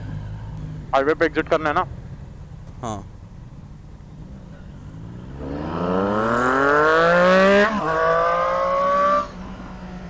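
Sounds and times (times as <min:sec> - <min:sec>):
motorcycle engine accelerating: 0:00.0 - 0:10.0.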